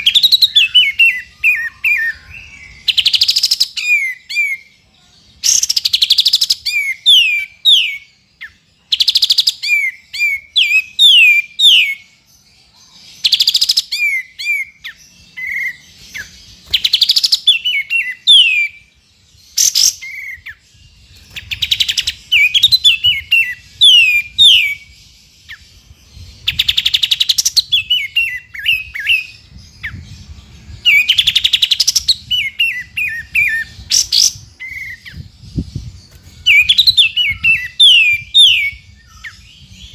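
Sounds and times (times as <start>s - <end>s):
bird whistling song: 0.0s - 39.9s.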